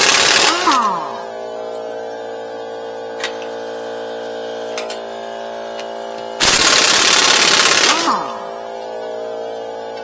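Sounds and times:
air impact wrench hammering: 0.0 - 1.3, 6.4 - 8.6
mechanical hum: 0.0 - 10.0.

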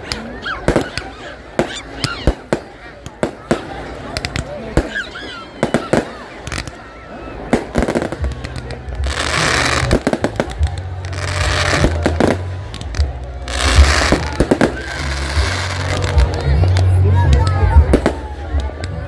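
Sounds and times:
fireworks bangs: 0.1 - 6.8, 7.4 - 18.9
fireworks hissing crackle: 7.4 - 17.0.

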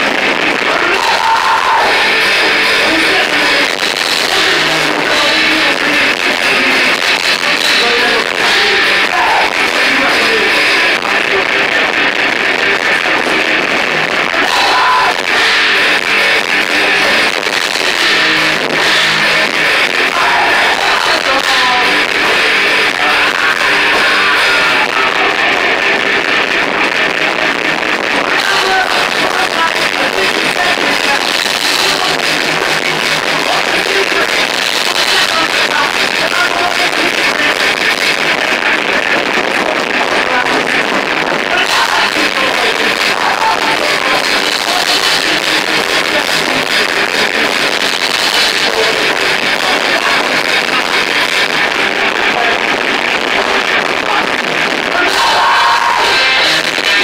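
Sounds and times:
drums: 0.0 - 57.0
electric guitar: 0.0 - 57.0
person shouting vocals: 0.7 - 2.2, 54.9 - 56.7.

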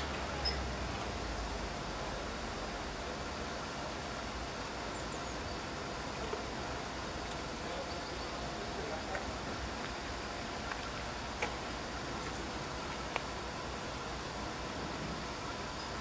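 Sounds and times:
diesel locomotive idling: 0.0 - 16.0.

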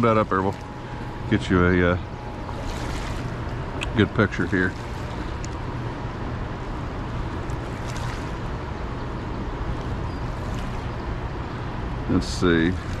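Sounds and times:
flowing river rushing: 0.0 - 6.2, 6.9 - 8.7.

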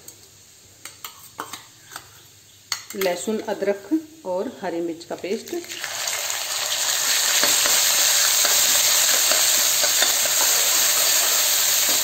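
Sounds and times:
paste sizzling in hot oil: 5.6 - 12.0.

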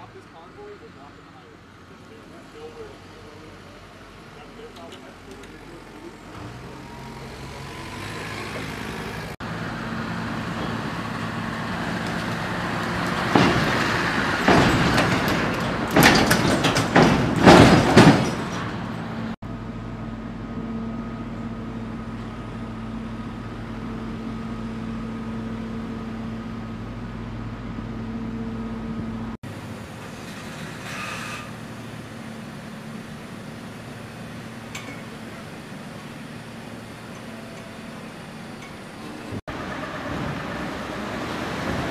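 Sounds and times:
heavy vehicle engines running: 0.0 - 41.9
loud metallic clanks and bangs: 13.0 - 19.4.

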